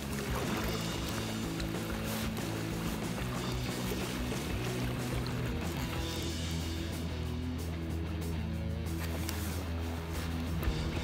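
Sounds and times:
waterside hiss: 0.0 - 7.3, 8.9 - 11.0
music with held low notes: 0.0 - 11.0.

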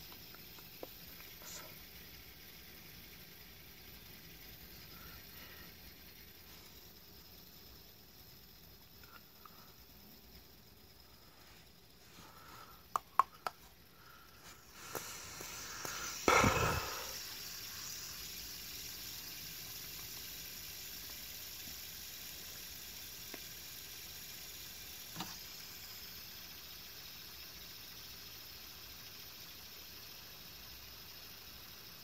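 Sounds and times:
faint hiss: 0.0 - 32.0
small ticks: 0.0 - 32.0
sharp clicks: 12.8 - 13.6.

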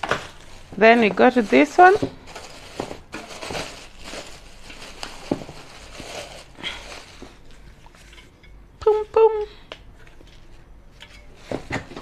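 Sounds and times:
plastic wrapping crinkling: 0.0 - 8.1.

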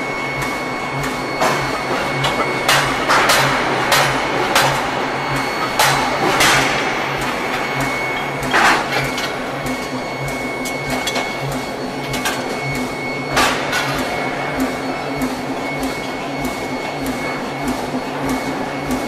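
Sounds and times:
power hammer rhythmic pulsing: 0.0 - 19.0
power hammer striking metal: 1.4 - 9.8.

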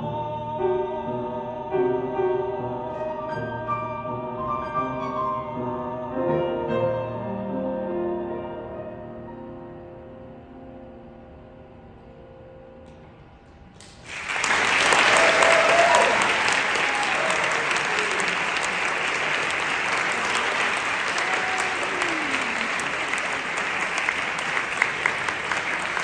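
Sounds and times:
audience applause: 13.8 - 26.0.

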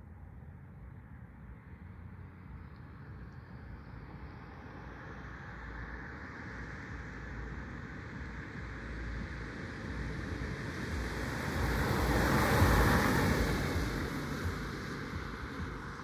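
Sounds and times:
car passing by: 1.8 - 16.0.

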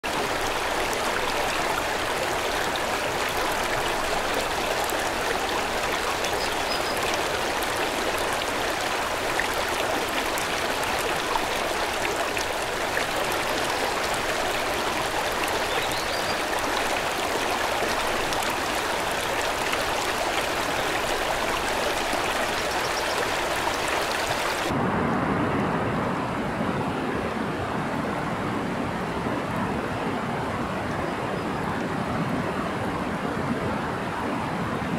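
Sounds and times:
river rushing over rocks: 0.0 - 25.0.

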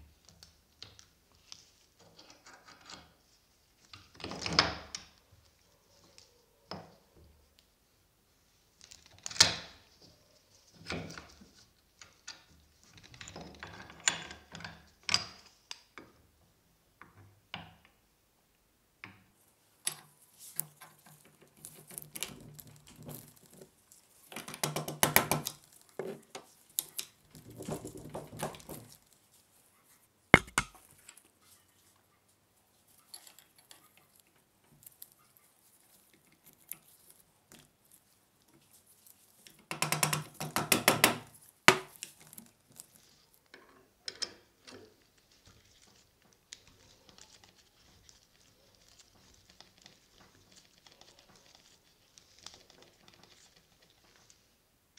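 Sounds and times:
sharp metal knock: 30.4 - 30.8.

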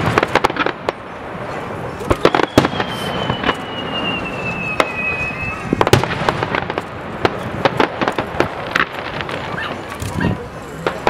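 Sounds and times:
fireworks bangs and crackles: 0.0 - 11.0
high falling whistle: 2.2 - 5.9.

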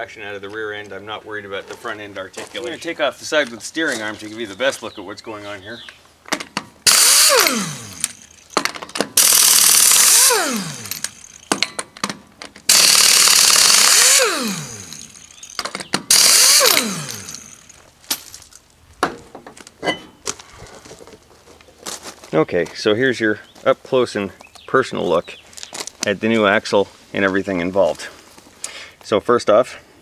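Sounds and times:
impact wrench bursts: 6.4 - 12.0, 12.7 - 18.3
wheel clicking and knocking: 6.4 - 18.2.

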